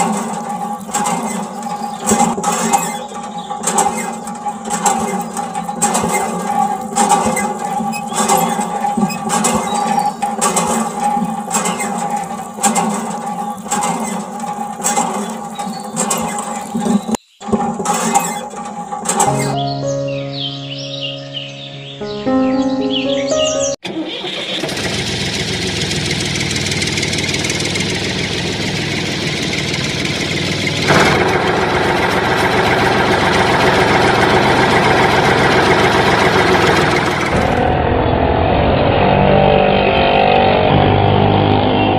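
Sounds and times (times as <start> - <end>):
water splashing on toy: 0.0 - 19.3
engine idling: 0.0 - 19.6, 23.8 - 38.0
small water pump running: 0.0 - 19.6, 24.2 - 37.6.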